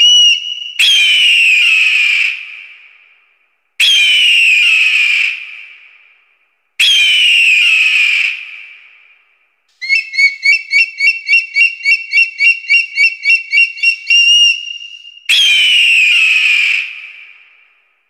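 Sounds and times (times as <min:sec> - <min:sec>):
eagle piping chirps: 0:09.8 - 0:15.5.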